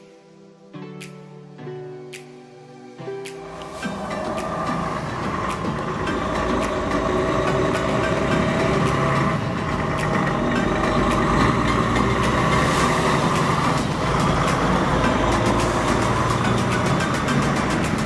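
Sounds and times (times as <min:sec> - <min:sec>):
tyres on road: 0:03.3 - 0:18.0
truck engine running: 0:03.6 - 0:18.0.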